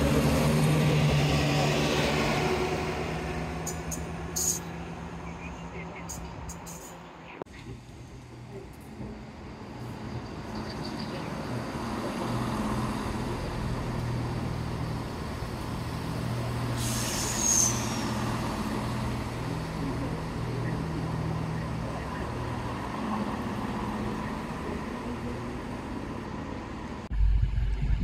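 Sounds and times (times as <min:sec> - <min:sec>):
diesel train engine running: 0:00.0 - 0:28.0
brake hiss with high squeal: 0:16.8 - 0:18.2.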